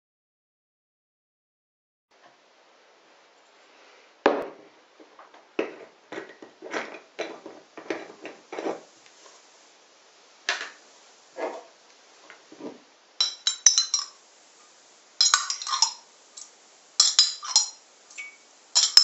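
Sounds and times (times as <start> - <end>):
glass jar knocking on wood: 15.2 - 16.0.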